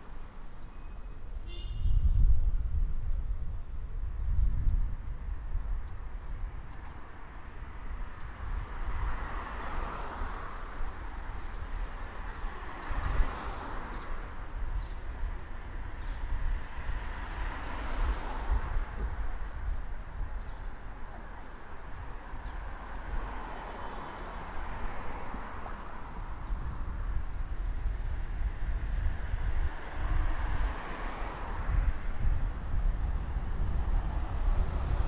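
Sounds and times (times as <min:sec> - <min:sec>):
low traffic rumble: 0:00.0 - 0:35.0
cars driving past: 0:07.2 - 0:35.0.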